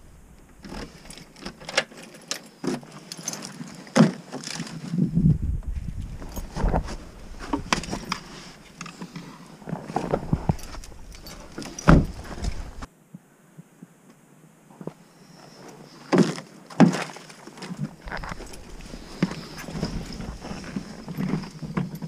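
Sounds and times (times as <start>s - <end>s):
rustling: 0.0s - 12.9s, 14.7s - 22.0s
knocks and thumps: 10.0s - 12.9s.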